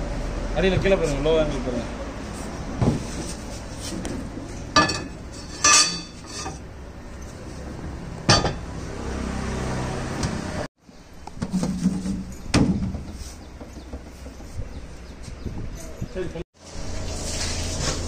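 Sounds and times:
metal pot and lid clanking: 4.8 - 6.6, 8.3 - 8.7.

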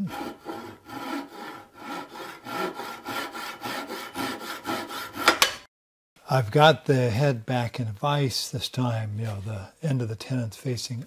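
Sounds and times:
hand saw cutting wood: 0.0 - 5.6.

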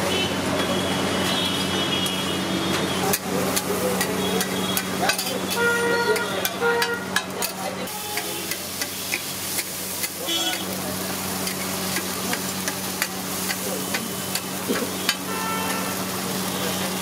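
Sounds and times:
street traffic hum: 0.0 - 17.0
short horn beeps: 15.1 - 16.0.

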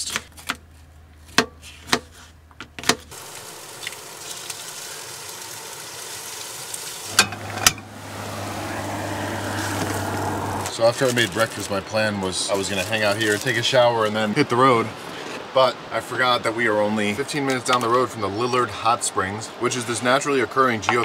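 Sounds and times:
eggs sizzling in frying pan: 3.1 - 10.3.

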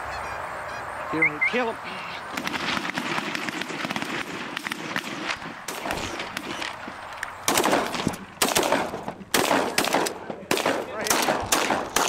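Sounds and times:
shotgun blasts: 2.4 - 6.8, 7.4 - 12.0.

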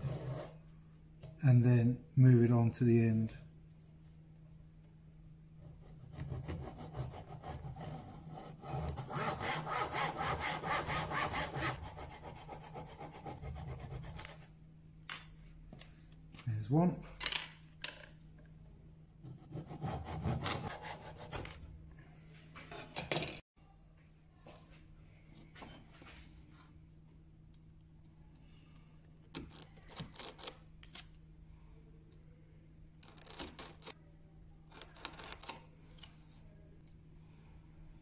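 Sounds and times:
handsaw cutting wood: 6.1 - 14.2, 19.3 - 21.4.

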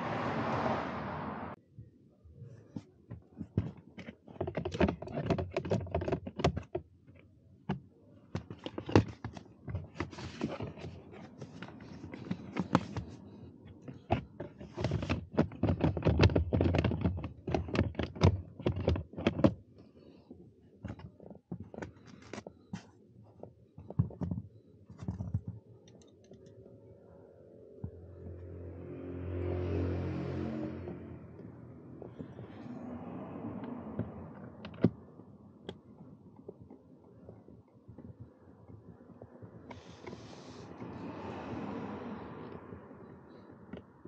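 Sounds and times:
plastic clicks and knocks: 3.1 - 19.6, 23.4 - 26.6, 33.6 - 35.0.

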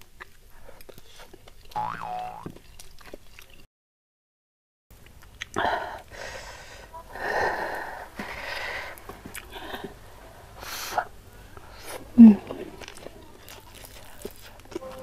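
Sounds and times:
person breathing hard and sniffing: 5.6 - 12.1.

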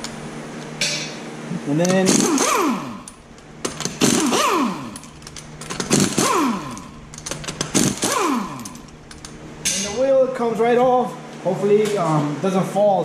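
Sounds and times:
impact wrench whirring: 1.8 - 10.0.

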